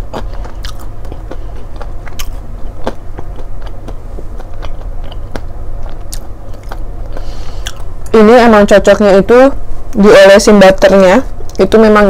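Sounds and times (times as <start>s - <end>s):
close-up chewing: 0.0s - 7.9s.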